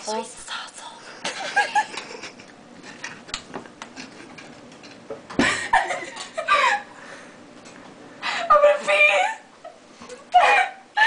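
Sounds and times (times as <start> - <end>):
girl squealing: 10.3 - 11.0.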